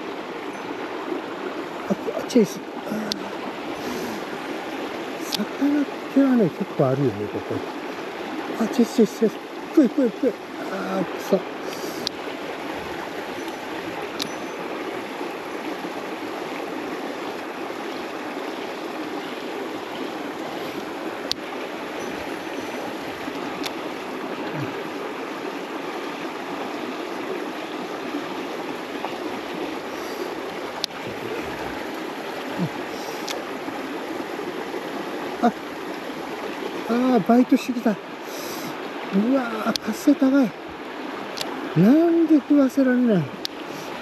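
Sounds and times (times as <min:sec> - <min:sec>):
stream running over rocks: 0:00.0 - 0:44.0
faint sharp clicks: 0:03.0 - 0:03.2, 0:11.7 - 0:12.2, 0:23.6 - 0:23.8, 0:33.2 - 0:33.4, 0:41.3 - 0:41.5, 0:43.4 - 0:43.6.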